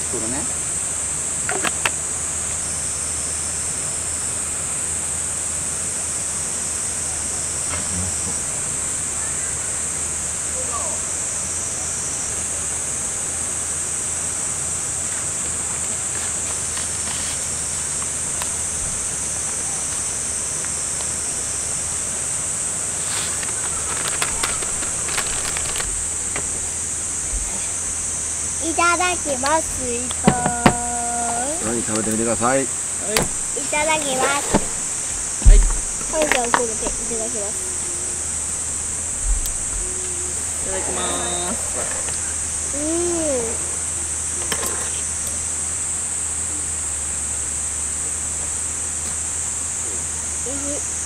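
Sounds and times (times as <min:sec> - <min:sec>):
insects buzzing: 0:00.0 - 0:51.0
light clicks and rustles: 0:16.1 - 0:18.6, 0:23.0 - 0:26.6.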